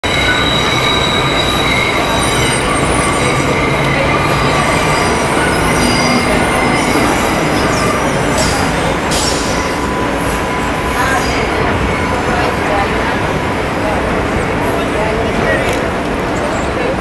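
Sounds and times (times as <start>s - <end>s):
subway train rumbling on rails: 0.0s - 17.0s
wheel squeal: 0.1s - 11.5s.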